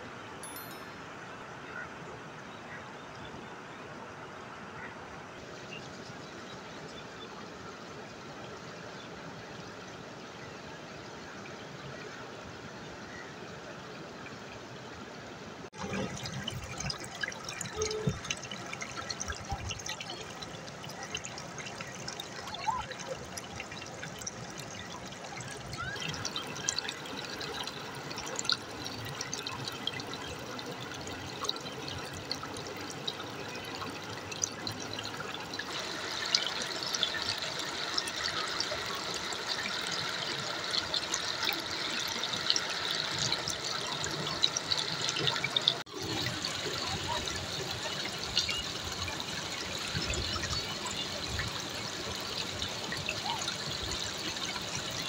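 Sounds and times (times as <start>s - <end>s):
river water babbling over stones: 13.9s - 55.0s.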